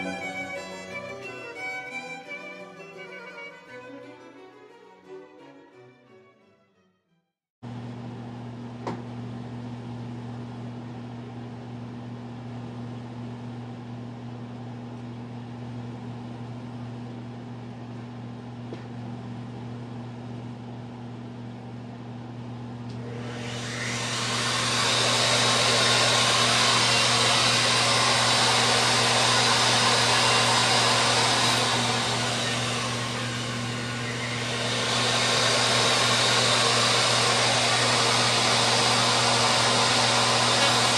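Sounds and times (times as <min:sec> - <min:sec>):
wood router running: 0:00.0 - 0:03.9, 0:22.9 - 0:40.9.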